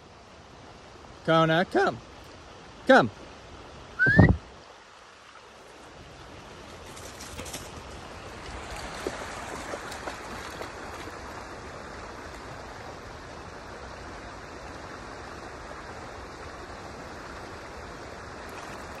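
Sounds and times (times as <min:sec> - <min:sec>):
river water rushing: 0:07.6 - 0:19.0.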